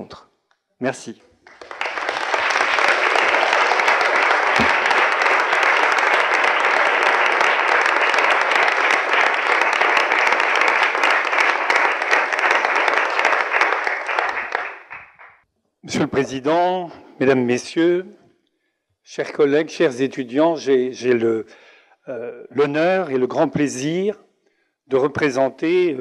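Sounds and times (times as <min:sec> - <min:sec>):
audience applauding: 0:01.4 - 0:15.4.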